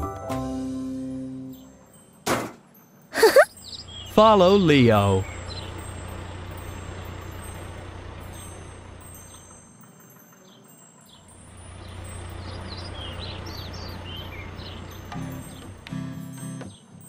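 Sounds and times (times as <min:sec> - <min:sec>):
bird chirps: 0:03.2 - 0:04.3, 0:05.1 - 0:06.0, 0:10.4 - 0:15.7
cartoon truck engine rumble: 0:03.2 - 0:09.6, 0:11.3 - 0:16.4.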